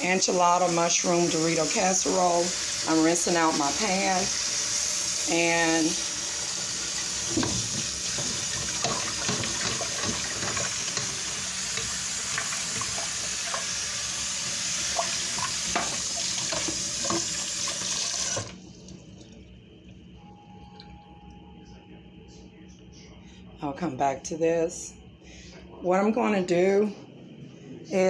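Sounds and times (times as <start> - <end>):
faucet running into saucepan: 0.0 - 18.6.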